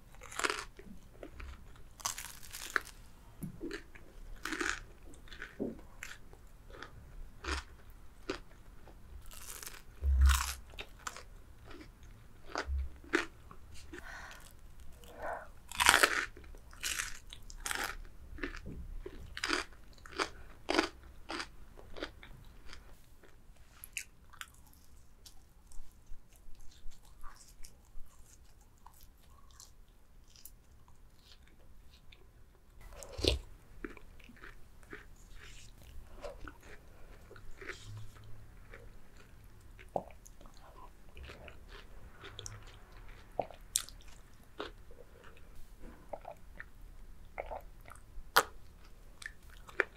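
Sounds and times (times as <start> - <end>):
crunching and chewing fried chicken: 0.0 - 49.9.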